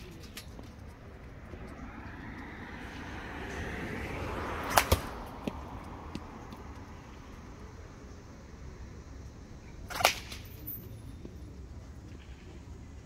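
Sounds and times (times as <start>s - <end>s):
rush of noise: 0.8s - 9.2s
bat cracking a ball: 4.6s - 5.2s, 9.9s - 10.5s.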